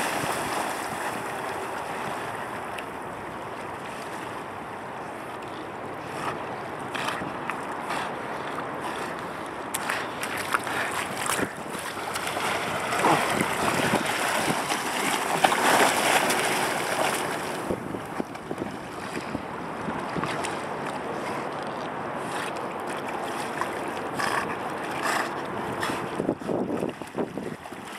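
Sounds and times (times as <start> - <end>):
water splashes: 0.0 - 5.4, 6.0 - 27.9
river water flowing: 0.0 - 27.9
wind buffeting microphone: 11.1 - 20.6, 25.0 - 27.9.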